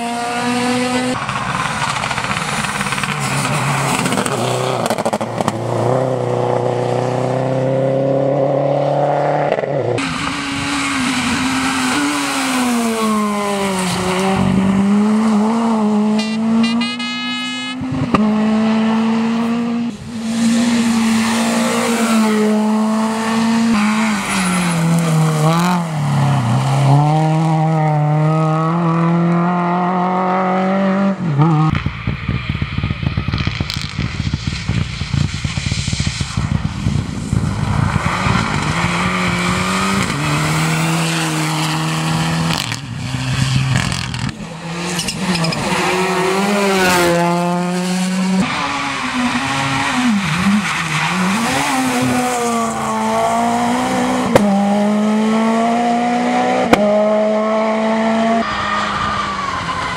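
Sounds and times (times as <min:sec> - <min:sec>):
rally car engines revving: 0:00.0 - 0:59.9
engine crackling: 0:00.8 - 0:06.7.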